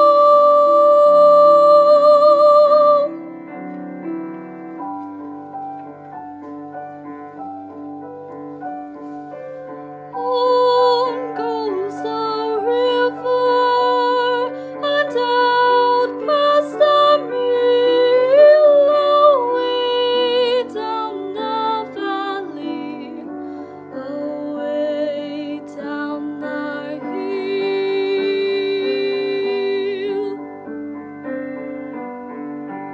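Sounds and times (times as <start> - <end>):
woman singing: 0.0 - 3.4, 10.1 - 30.5
piano accompaniment: 0.0 - 32.9.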